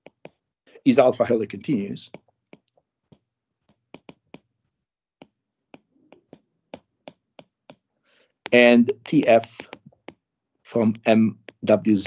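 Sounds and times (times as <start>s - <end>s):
stylus tapping on glass screen: 0.0s - 0.5s, 2.1s - 10.3s, 11.2s - 12.0s.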